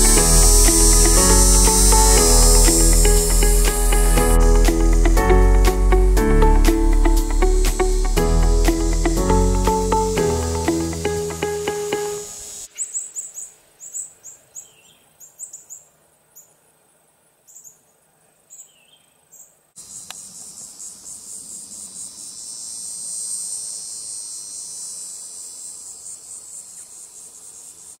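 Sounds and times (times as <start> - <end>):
pulsing insect chorus: 0.0 - 14.0, 19.8 - 28.0
short high insect chirps: 0.0 - 14.4, 19.8 - 28.0.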